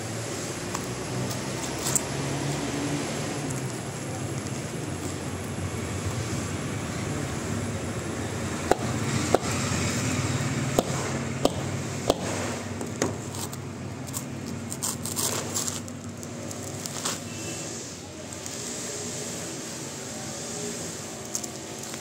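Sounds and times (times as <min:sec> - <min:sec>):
coconut knocking on concrete: 0:08.6 - 0:09.6, 0:10.8 - 0:13.2
coconut husk ripping: 0:13.1 - 0:17.5.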